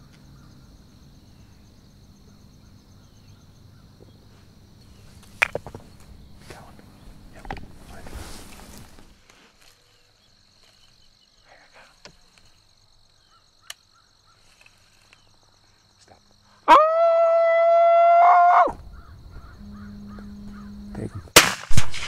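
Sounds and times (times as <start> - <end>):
predator call howl: 16.6 - 21.3.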